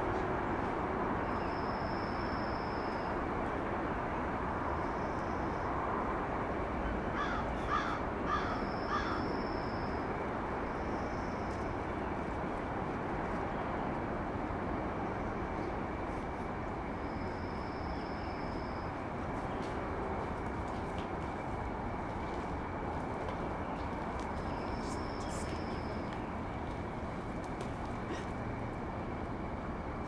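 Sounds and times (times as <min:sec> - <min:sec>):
crow cawing: 0:07.2 - 0:09.2.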